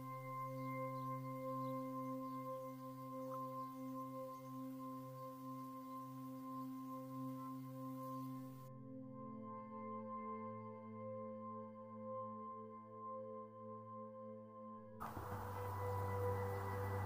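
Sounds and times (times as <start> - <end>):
ambient bell-like drone music: 0.0 - 17.0
faint outdoor hiss: 15.0 - 17.0.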